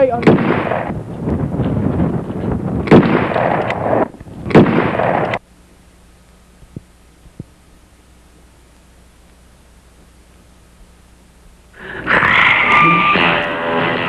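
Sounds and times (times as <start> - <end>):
gunshots: 0.1 - 1.0, 2.8 - 5.4.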